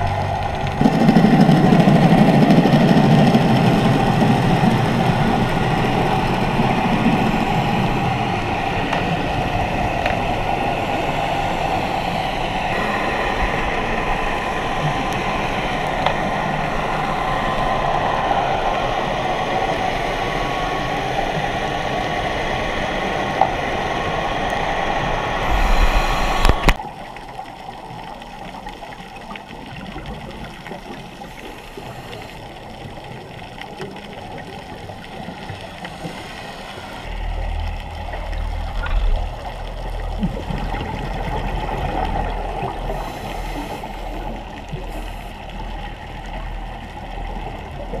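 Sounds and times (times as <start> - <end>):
muffled boat motor underwater: 0.0 - 48.0
underwater hiss: 1.3 - 26.8, 30.6 - 33.3, 35.0 - 37.5, 40.7 - 47.7
faint whining tones: 2.5 - 48.0.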